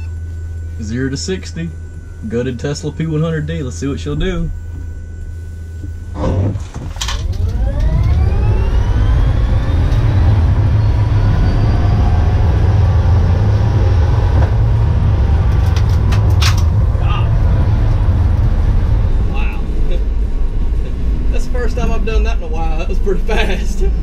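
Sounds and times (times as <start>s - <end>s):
electric motor whine: 0.0s - 22.1s
road and tyre rumble: 6.2s - 24.0s.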